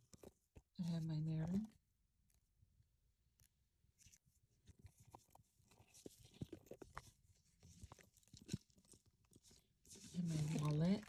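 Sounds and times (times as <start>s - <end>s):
items rustling in a handbag: 0.0s - 1.8s, 3.9s - 11.0s.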